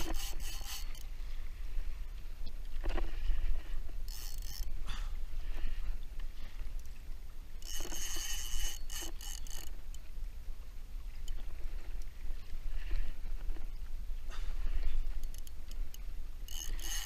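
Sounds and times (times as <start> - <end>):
fishing reel whirring and clicking: 0.0 - 1.1, 2.7 - 6.0, 7.6 - 10.1, 11.1 - 13.4, 14.6 - 17.0
water lapping against kayak: 0.0 - 17.0.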